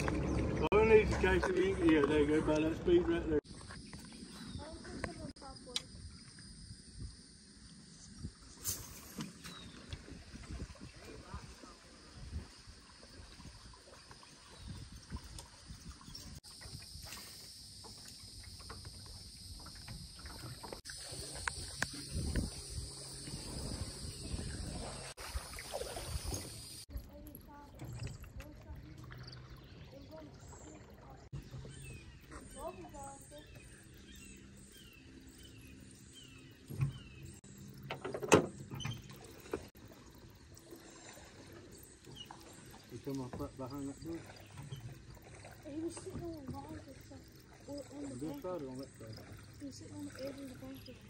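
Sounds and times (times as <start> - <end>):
knocks and clunks in a boat: 0.0 - 3.3, 17.8 - 26.6, 27.5 - 33.7, 36.6 - 39.7, 41.3 - 48.5
high insect drone: 3.5 - 9.2, 15.5 - 26.9, 31.8 - 51.0
bird chirping: 9.2 - 9.9, 28.9 - 39.5
low wind rumble on microphone: 9.9 - 13.8, 14.6 - 16.4, 21.4 - 25.1.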